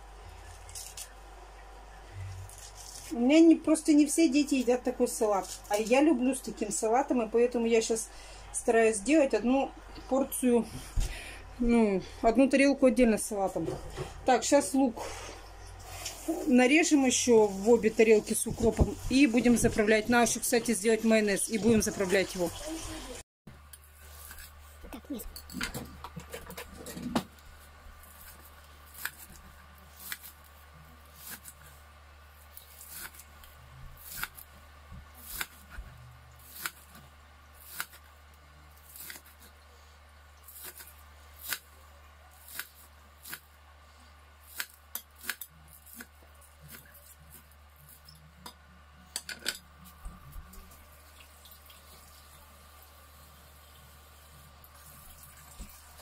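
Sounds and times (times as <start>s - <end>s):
knife chopping on cutting board: 35.0s - 35.9s.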